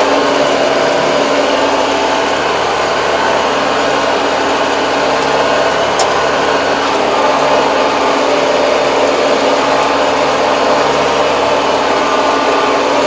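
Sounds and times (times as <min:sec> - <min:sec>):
tractor engine running: 0:00.0 - 0:13.0.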